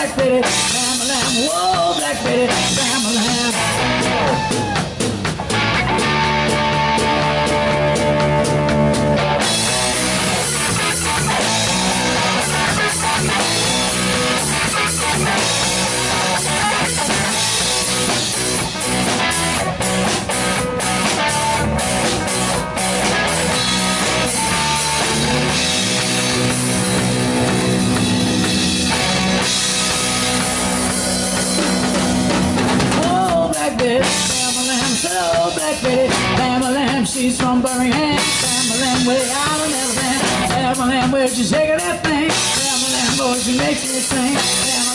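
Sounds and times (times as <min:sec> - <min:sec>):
woman singing: 0:00.0 - 0:03.8, 0:33.0 - 0:44.9
drum kit: 0:00.0 - 0:44.9
electric bass: 0:00.0 - 0:44.9
electric guitar: 0:00.0 - 0:44.9.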